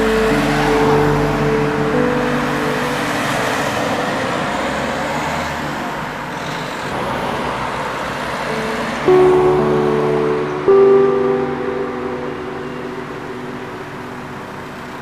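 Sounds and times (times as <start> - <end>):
music with held notes: 0.0 - 5.4, 8.4 - 15.0
cars passing on wet street: 0.0 - 15.0.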